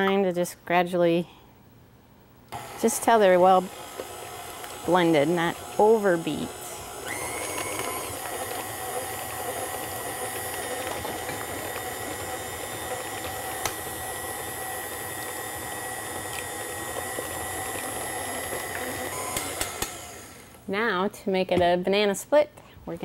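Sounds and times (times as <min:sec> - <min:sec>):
stand mixer whining: 0:02.6 - 0:20.6.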